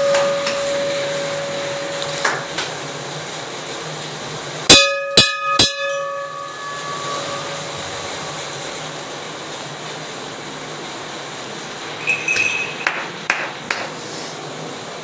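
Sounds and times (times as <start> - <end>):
brass bell clanging: 0.0 - 2.6, 4.7 - 8.6, 12.0 - 13.2
rain hissing: 0.0 - 4.7.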